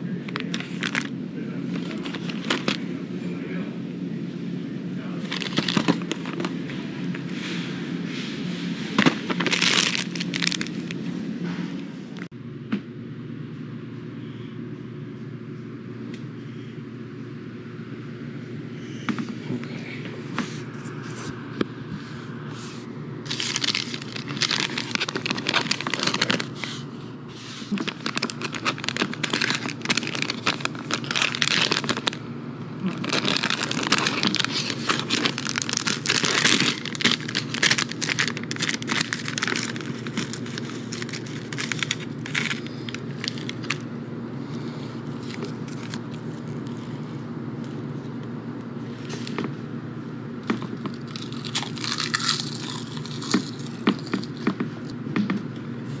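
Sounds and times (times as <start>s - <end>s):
steady low hum: 0.0s - 56.0s
plastic pouch crinkling: 0.2s - 1.1s, 1.7s - 2.8s, 5.2s - 6.7s, 8.9s - 11.0s, 23.3s - 26.8s, 27.7s - 32.2s, 32.8s - 43.9s, 45.0s - 47.0s, 50.7s - 54.5s.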